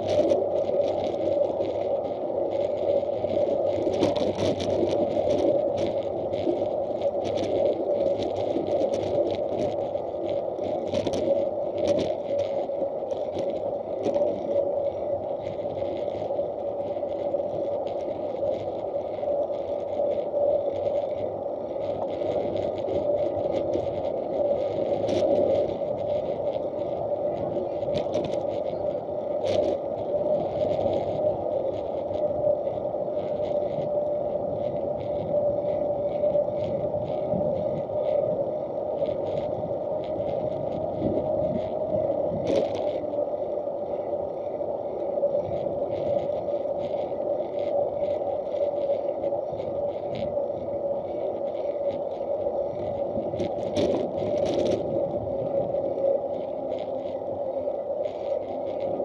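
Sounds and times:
constant hum: 0.0s - 59.0s
rolling noise on asphalt: 0.0s - 59.0s
small clicks and rattles: 2.5s - 14.6s, 15.4s - 34.0s, 38.9s - 43.3s, 45.2s - 57.4s.

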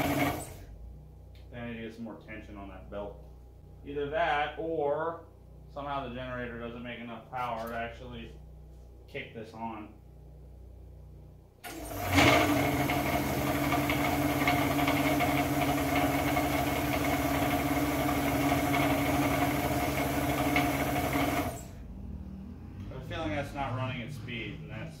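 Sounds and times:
electric motor driving air compressor: 0.0s - 0.7s, 11.6s - 21.8s.

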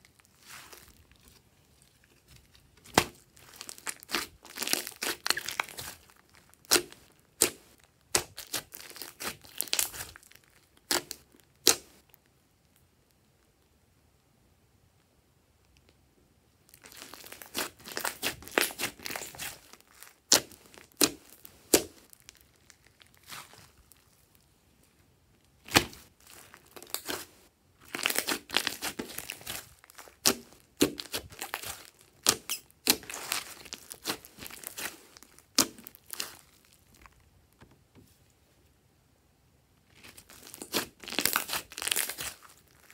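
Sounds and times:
slime sticky crackles: 0.1s - 12.1s, 16.7s - 24.4s, 25.6s - 37.2s, 39.9s - 42.9s.

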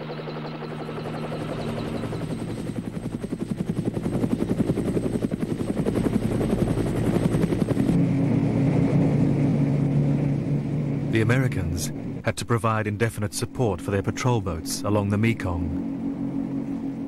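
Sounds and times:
helicopter rotor chopping: 0.0s - 17.0s
low engine drone: 6.4s - 17.0s.

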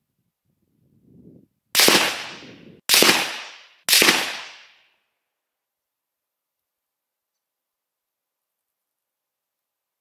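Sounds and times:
rifle shots: 1.8s - 4.8s.

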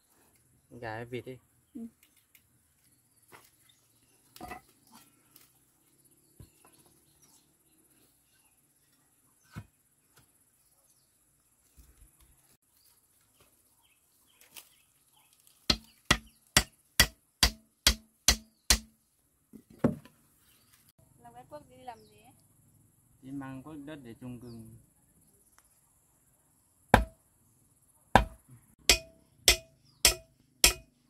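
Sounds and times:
blade chopping wooden stick: 15.7s - 18.9s, 27.0s - 27.2s, 28.2s - 30.9s
blade tapping and scraping wood: 15.7s - 18.9s.

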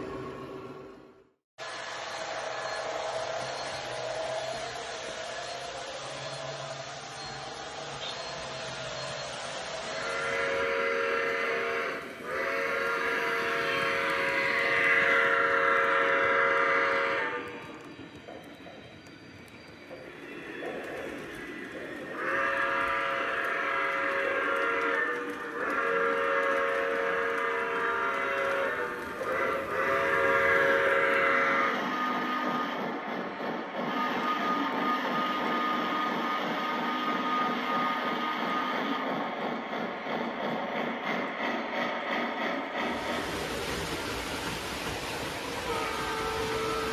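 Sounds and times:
model trains rolling on track: 0.0s - 46.9s
steam locomotive whistle: 1.6s - 17.9s, 21.8s - 39.6s, 45.4s - 46.9s.

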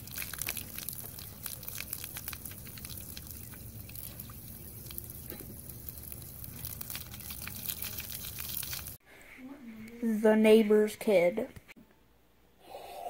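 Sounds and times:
water splattering on concrete: 0.0s - 9.0s.

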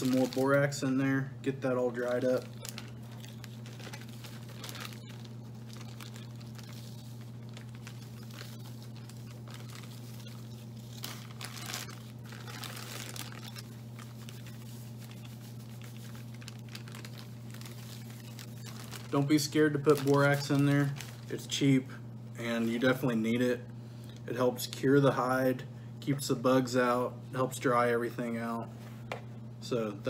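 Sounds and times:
plastic bag crinkling: 0.0s - 0.9s, 1.6s - 21.6s
steady low hum: 0.0s - 30.0s.

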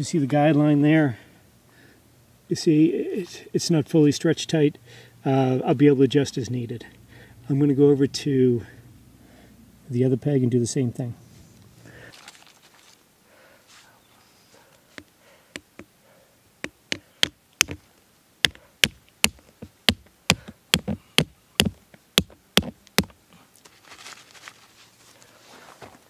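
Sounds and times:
hands rustling in needle litter: 11.5s - 13.0s, 23.6s - 26.0s
rock hammering tent peg: 15.0s - 15.9s, 16.6s - 23.2s.

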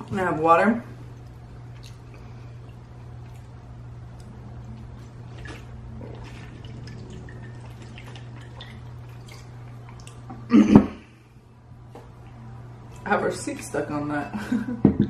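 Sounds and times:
steady low hum: 0.0s - 15.0s
person gulping water: 4.8s - 11.0s.

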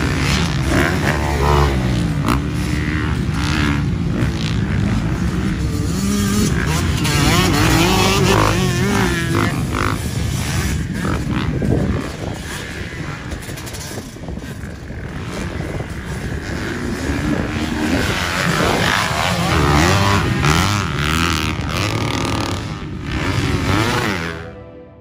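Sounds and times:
dirt bike engines revving: 0.0s - 25.0s.

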